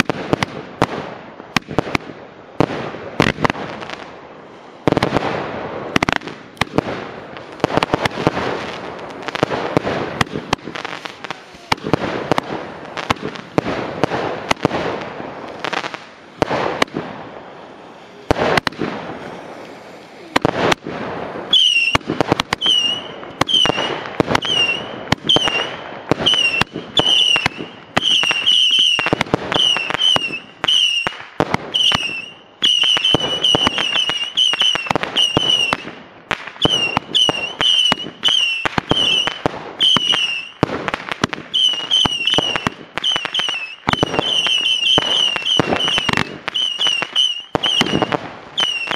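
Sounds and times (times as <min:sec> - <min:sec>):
fireworks crackling pops: 0:00.0 - 0:48.9
firework whistles: 0:07.5 - 0:40.7, 0:41.3 - 0:48.9.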